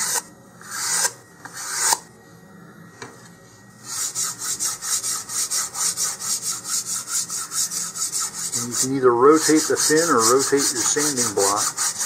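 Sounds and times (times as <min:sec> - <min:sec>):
sandpaper rubbing on wood: 0:03.9 - 0:12.0.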